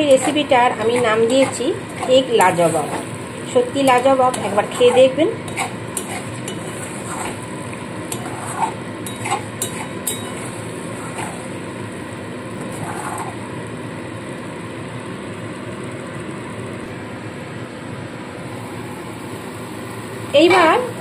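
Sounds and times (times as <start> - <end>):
spatula scraping metal pan: 0.0 - 11.6.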